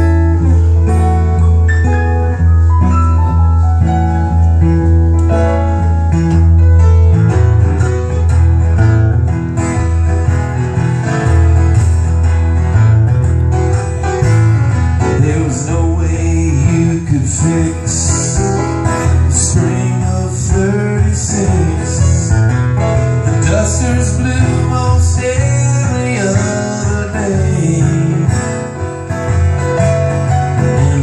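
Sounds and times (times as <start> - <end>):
piano playing: 0.0 - 31.0
strummed acoustic guitar: 0.0 - 31.0
person singing: 15.1 - 22.5, 23.4 - 28.5.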